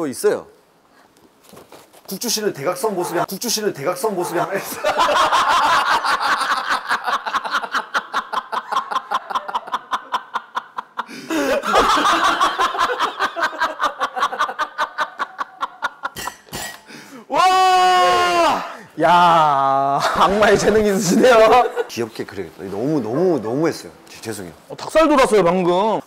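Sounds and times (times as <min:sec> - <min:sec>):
breath: 0:00.9 - 0:01.2, 0:16.8 - 0:17.3
man laughing hard: 0:04.0 - 0:16.2.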